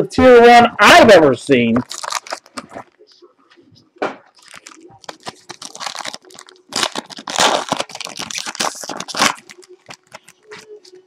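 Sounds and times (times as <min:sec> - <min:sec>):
foil wrapper crinkling: 0:01.8 - 0:02.9, 0:04.3 - 0:11.0.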